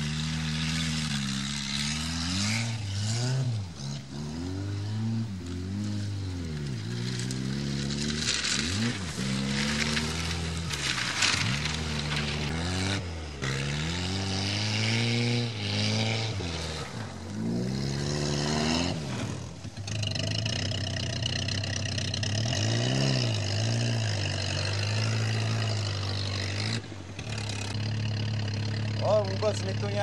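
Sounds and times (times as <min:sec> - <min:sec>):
car engine revving: 0:00.0 - 0:30.0
man speaking: 0:29.0 - 0:30.0.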